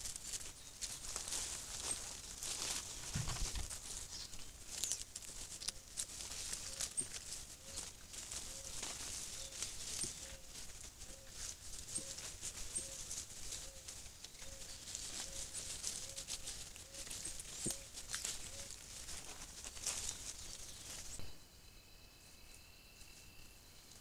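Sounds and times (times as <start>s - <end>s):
dry leaves rustling and crackling: 0.0s - 21.2s
faint steady high tone: 21.2s - 24.0s.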